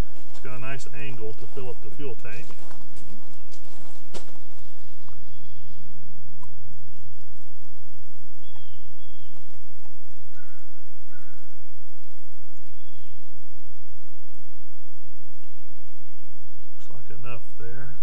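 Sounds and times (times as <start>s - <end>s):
steady low hum: 0.0s - 18.0s
high bird chirps: 4.4s - 7.3s, 8.4s - 11.7s, 12.6s - 13.3s.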